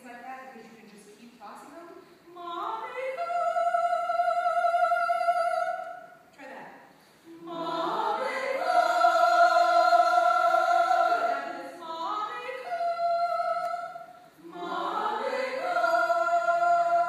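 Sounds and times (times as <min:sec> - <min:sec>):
choir singing held notes: 0:07.2 - 0:17.0.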